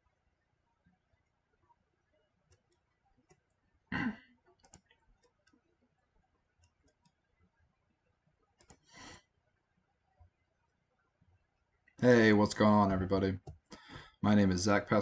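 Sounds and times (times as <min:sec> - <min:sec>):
faint clicks: 0:04.5 - 0:05.6, 0:08.6 - 0:08.9.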